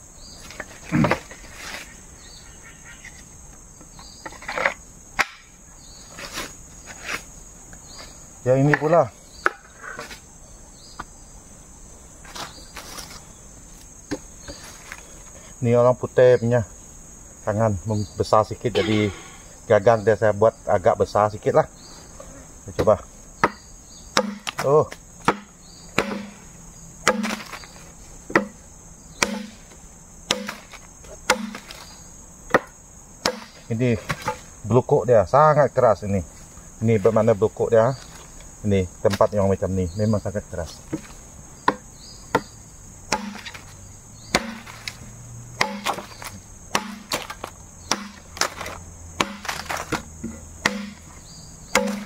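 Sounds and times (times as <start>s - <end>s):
insects chirring: 0.0s - 52.0s
machete chopping bamboo: 5.2s - 5.5s, 8.7s - 9.7s, 22.8s - 28.6s, 29.2s - 31.9s, 32.5s - 34.5s, 40.9s - 43.7s, 44.3s - 52.0s
sharp knock: 25.3s - 26.4s, 29.2s - 29.6s, 44.3s - 44.9s, 46.7s - 47.2s, 47.9s - 48.2s, 50.6s - 51.1s, 51.7s - 52.0s.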